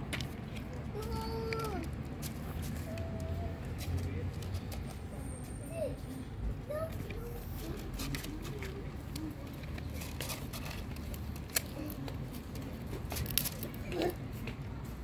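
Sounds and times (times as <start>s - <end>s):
cats crunching dry kibble: 7.6s - 14.2s.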